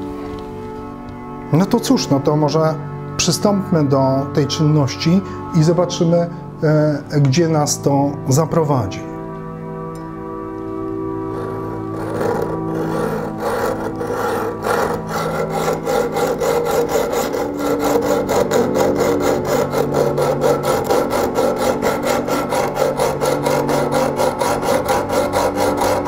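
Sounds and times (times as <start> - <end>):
soft background music: 0.0 - 26.0
hacksaw cutting metal: 11.3 - 26.0.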